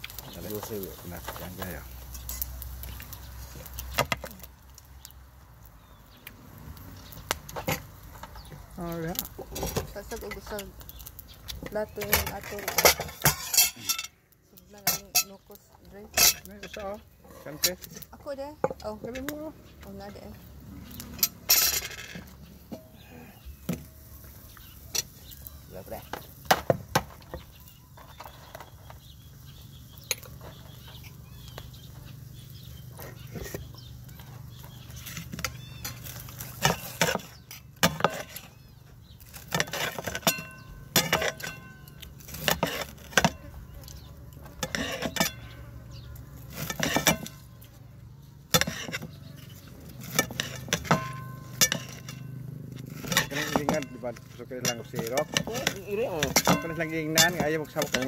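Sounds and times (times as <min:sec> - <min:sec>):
utensils clinking on a plate: 0:12.0 - 0:14.2, 0:14.8 - 0:15.4, 0:16.1 - 0:18.0, 0:21.1 - 0:23.0, 0:39.4 - 0:43.5, 0:44.6 - 0:45.5, 0:46.6 - 0:47.4, 0:50.0 - 0:52.4, 0:53.0 - 0:58.0.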